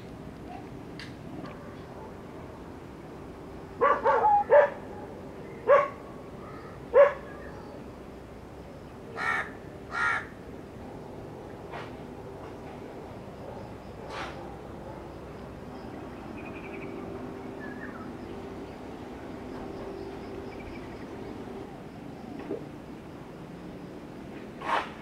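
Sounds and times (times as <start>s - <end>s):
crow cawing: 9.2s - 10.3s.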